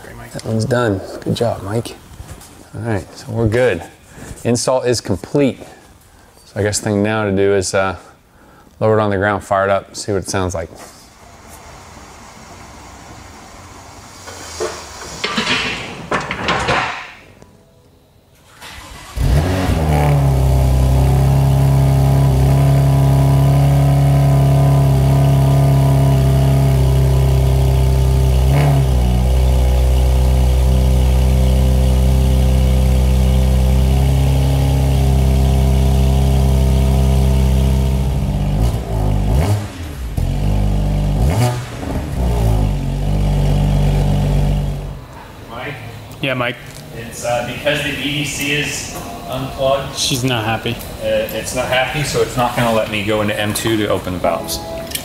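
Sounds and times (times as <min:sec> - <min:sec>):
car engine starting and idling: 0:11.2 - 0:15.7, 0:18.4 - 0:55.0
engine revving blips: 0:18.8 - 0:45.2.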